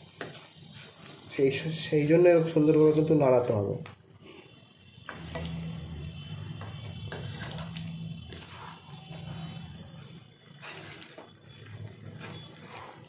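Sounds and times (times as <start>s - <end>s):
spatula scraping a pan: 5.1s - 13.0s.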